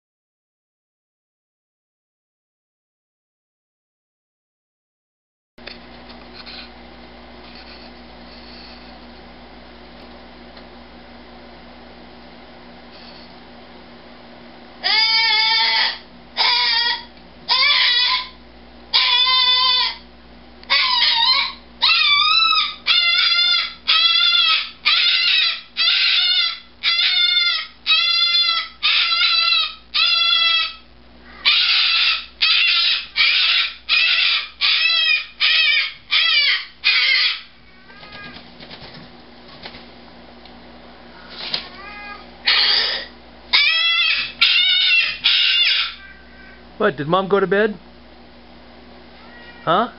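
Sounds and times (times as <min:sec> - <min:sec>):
cockatoo screaming: 0:14.8 - 0:20.0, 0:20.6 - 0:38.4, 0:41.6 - 0:46.6.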